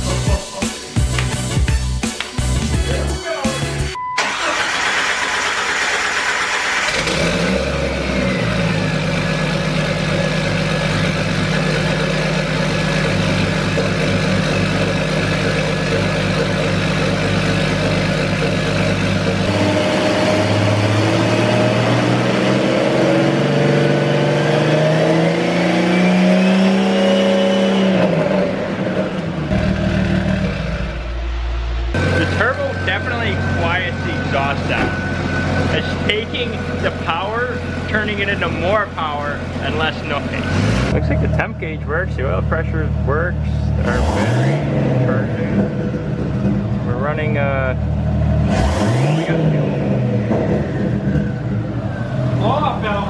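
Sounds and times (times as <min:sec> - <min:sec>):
car engine starting and idling: 0:04.0 - 0:27.0, 0:27.8 - 0:53.0
engine revving: 0:04.2 - 0:53.0
high whine: 0:27.9 - 0:43.4.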